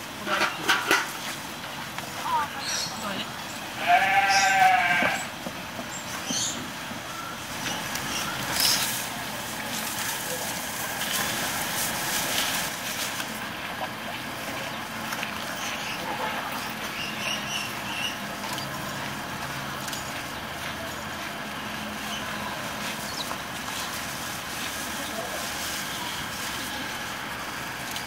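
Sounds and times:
steady background noise: 0.0 - 28.0
animals chewing: 0.2 - 28.0
leaves and twigs rustling: 7.4 - 16.0, 16.7 - 28.0.

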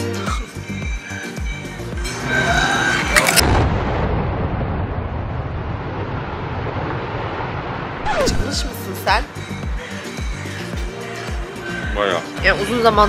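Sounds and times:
building collapsing rumble: 2.8 - 8.8.

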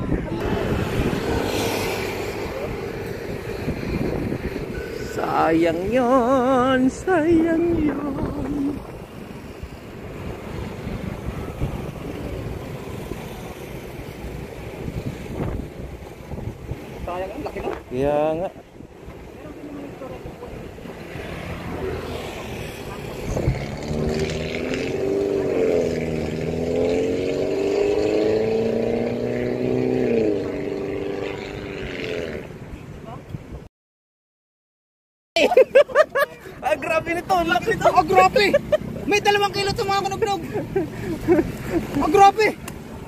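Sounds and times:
wind buffeting microphone: 0.0 - 19.6, 22.4 - 26.2.

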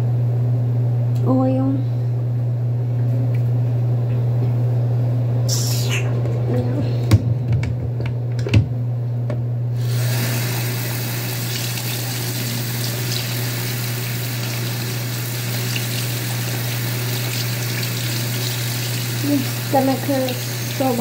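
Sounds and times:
steady low hum: 0.0 - 21.0
water running from a tap: 9.8 - 21.0.

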